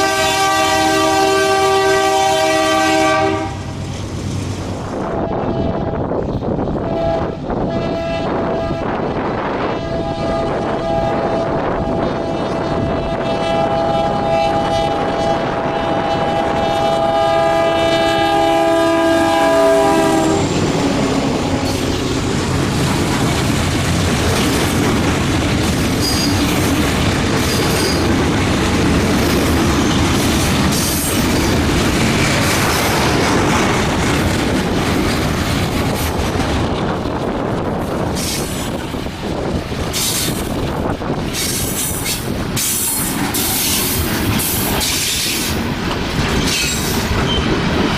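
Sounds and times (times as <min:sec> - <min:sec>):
locomotive air horn: 0:00.0 - 0:03.8, 0:06.8 - 0:20.6
wheels clicking over rail joints: 0:20.5 - 0:47.9
train wheel squeal: 0:26.0 - 0:26.7, 0:27.4 - 0:28.1, 0:38.1 - 0:38.7, 0:39.9 - 0:40.5, 0:41.3 - 0:45.6, 0:46.2 - 0:47.9.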